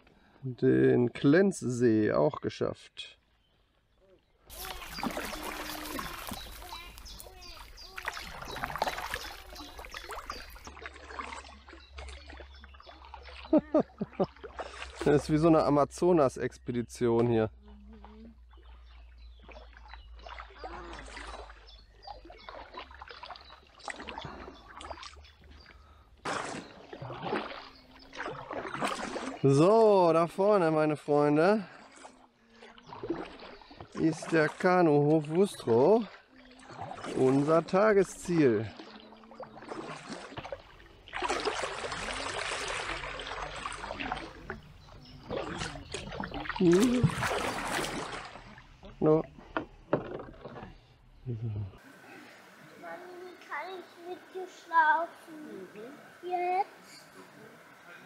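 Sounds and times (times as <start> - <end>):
paddle splashing in water: 4.4 - 15.5, 18.0 - 51.0
water dripping from paddle: 4.5 - 15.6, 17.0 - 29.8, 31.4 - 50.9
short vocal sound: 51.3 - 51.8.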